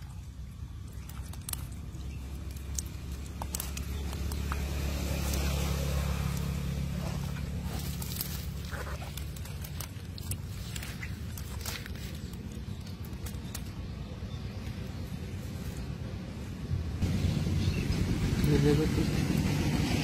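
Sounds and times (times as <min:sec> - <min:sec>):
eels squelching: 0:00.0 - 0:14.1
low motor hum: 0:00.0 - 0:20.0.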